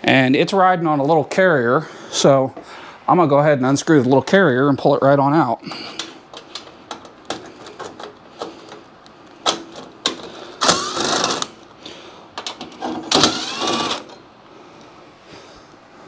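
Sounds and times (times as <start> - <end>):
cordless drill motor whine: 10.6 - 11.6, 13.1 - 14.2.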